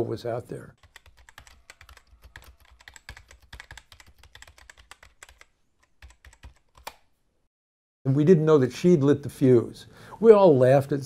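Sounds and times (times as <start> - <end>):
computer keyboard typing clicks: 0.8 - 7.0.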